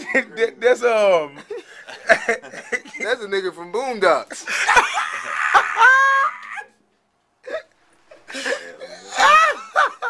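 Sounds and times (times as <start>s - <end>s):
men laughing: 1.3s - 3.1s, 4.3s - 6.7s, 7.4s - 10.0s
high squealing laugh: 4.7s - 6.8s.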